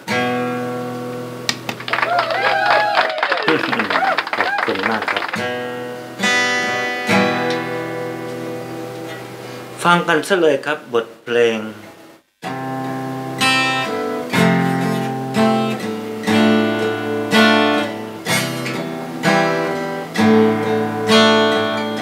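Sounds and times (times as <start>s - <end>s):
acoustic guitar strumming chords: 0.0s - 1.7s, 4.8s - 10.1s, 11.9s - 22.0s.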